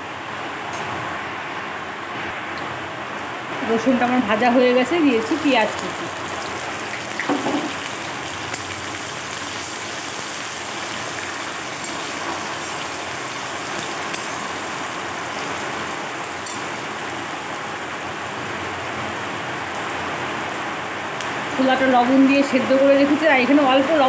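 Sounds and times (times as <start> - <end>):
onions sizzling in hot oil: 3.6 - 18.3.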